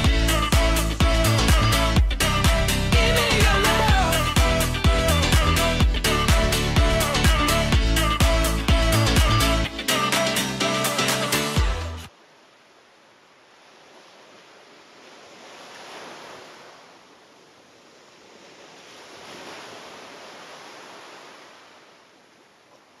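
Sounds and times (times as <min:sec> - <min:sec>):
ocean waves washing onto beach: 0:12.1 - 0:23.0.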